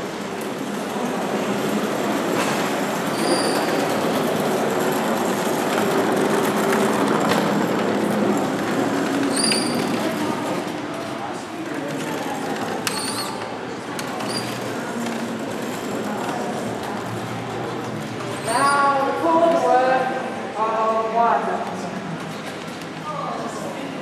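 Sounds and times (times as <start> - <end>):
castor wheels rumbling on concrete: 0.0 - 20.5
wheels squeaking: 0.4 - 19.3.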